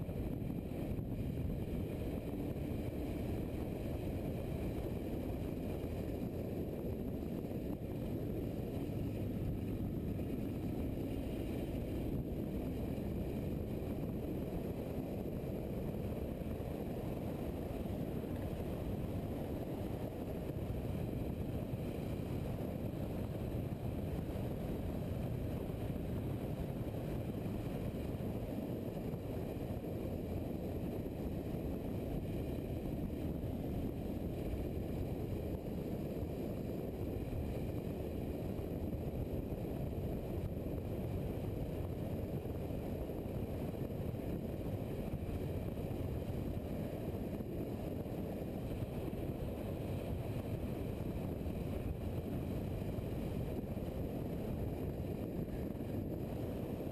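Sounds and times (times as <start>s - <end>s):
wind noise: 0.0s - 56.9s.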